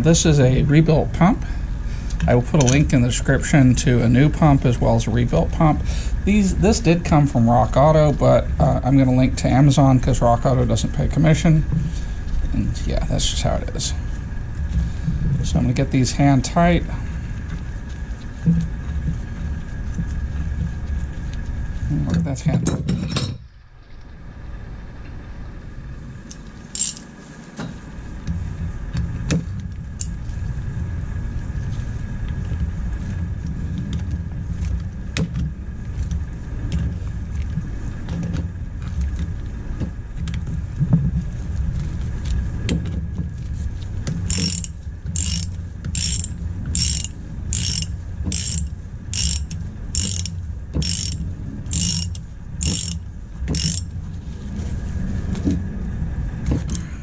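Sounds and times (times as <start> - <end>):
low steady rumble: 0.0 - 57.0
socket ratchet clicking: 26.3 - 27.1, 44.3 - 53.9.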